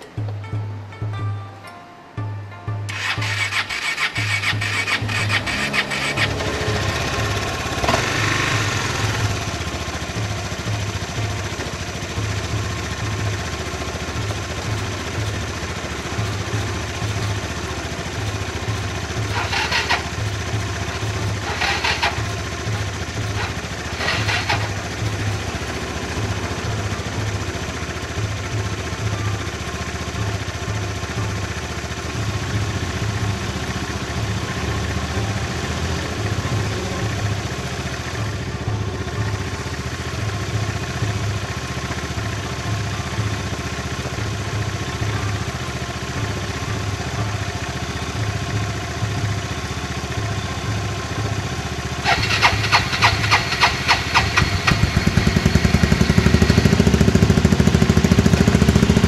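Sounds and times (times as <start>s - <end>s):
loud rapid clattering: 2.9s - 27.3s, 52.0s - 59.0s
motor scooter engine idling: 2.9s - 59.0s.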